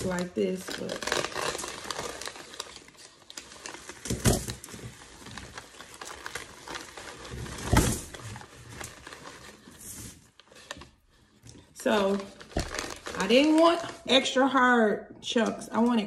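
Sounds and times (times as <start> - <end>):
paper bag crinkling: 0.0 - 14.3
brick chunks crunching: 12.4 - 13.5.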